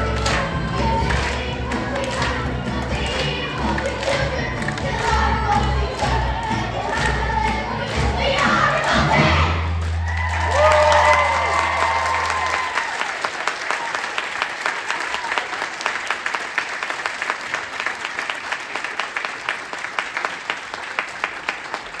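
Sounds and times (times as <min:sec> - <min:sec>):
audience applauding: 0:09.7 - 0:22.0
whoops and cheers: 0:09.9 - 0:14.3.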